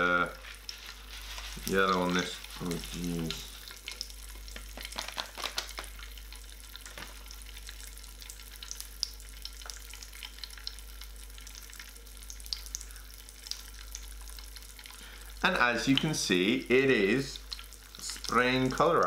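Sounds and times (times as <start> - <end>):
faint steady hiss: 0.0 - 19.0
crystals popping in water: 2.9 - 10.1.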